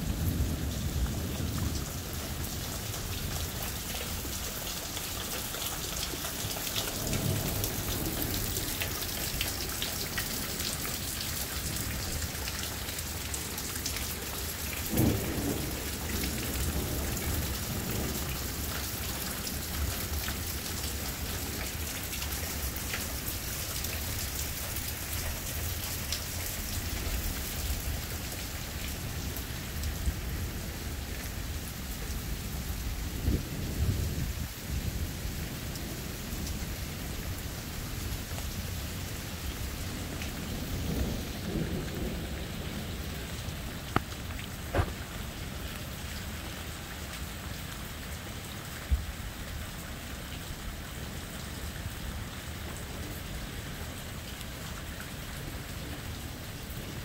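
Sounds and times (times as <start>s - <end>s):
heavy rain pouring: 0.0s - 57.0s
thunder rumbling: 6.4s - 12.1s, 14.8s - 20.0s, 32.7s - 45.1s
sharp thunderclap: 14.9s - 17.0s.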